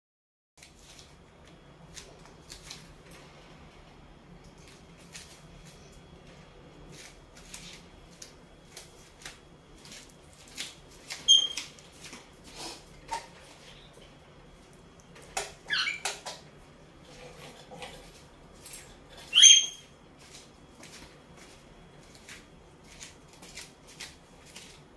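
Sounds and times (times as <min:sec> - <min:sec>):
parrot squeaks: 0:11.3 - 0:11.6, 0:15.6 - 0:16.2, 0:19.2 - 0:19.9.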